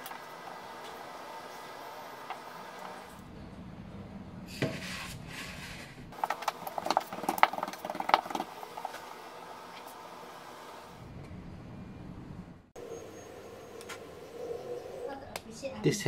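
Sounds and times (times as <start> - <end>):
hands rubbing dough: 4.7 - 9.1.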